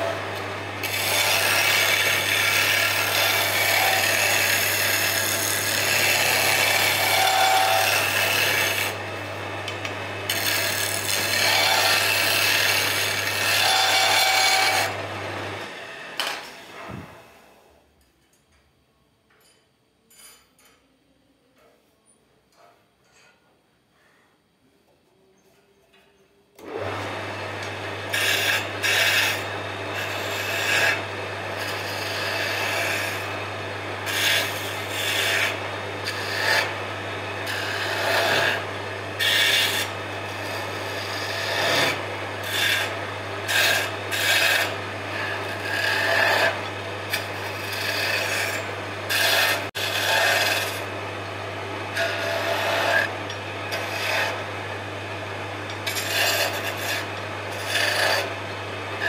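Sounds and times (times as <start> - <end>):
turning tool scraping wood: 0.0 - 9.0, 9.7 - 15.0, 26.6 - 50.9, 51.8 - 54.8, 55.6 - 59.0
lathe motor humming: 0.0 - 17.2, 26.6 - 59.0.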